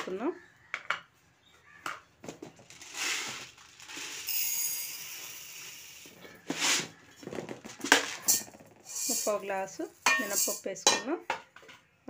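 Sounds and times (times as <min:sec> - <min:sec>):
dry grains poured into steel cup: 0:02.7 - 0:06.9, 0:07.8 - 0:10.6.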